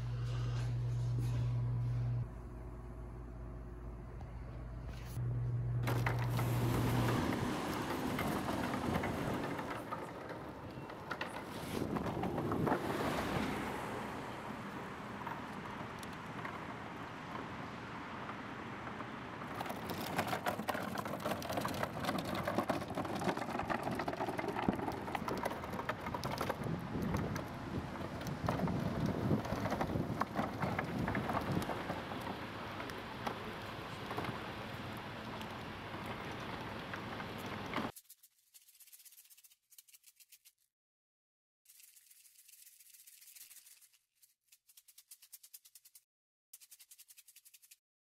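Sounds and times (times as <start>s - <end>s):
cart wheels rolling over asphalt: 5.8s - 38.0s.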